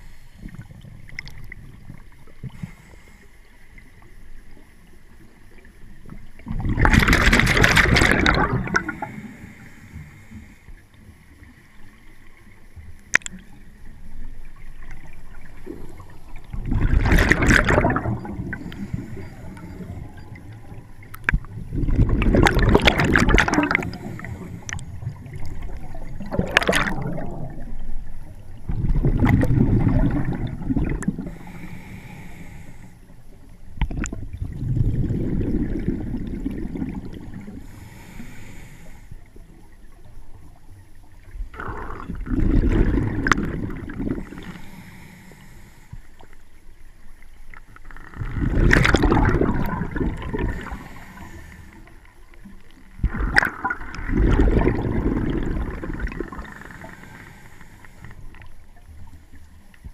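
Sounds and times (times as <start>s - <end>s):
regulator bubbling exhalations: 6.5s - 9.4s, 16.5s - 20.0s, 21.6s - 27.6s, 41.5s - 44.8s, 48.0s - 51.8s, 53.0s - 57.4s.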